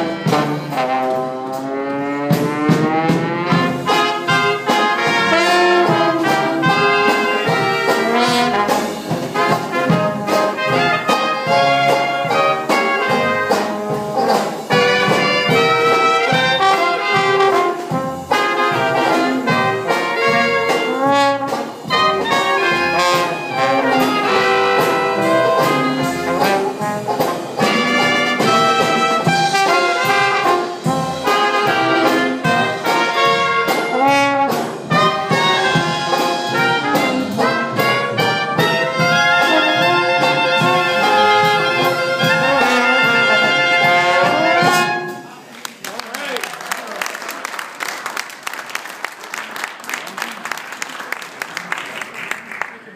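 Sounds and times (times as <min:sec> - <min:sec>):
trombone and trumpet: 0:00.0 - 0:45.5
jazz band playing: 0:00.0 - 0:45.9
drums: 0:00.0 - 0:52.7.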